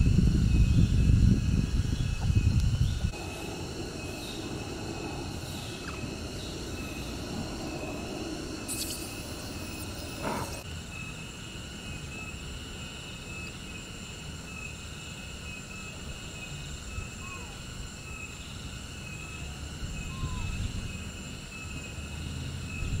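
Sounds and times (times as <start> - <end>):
low background rumble: 0.0 - 10.6
high-pitched insect calls: 0.0 - 23.0.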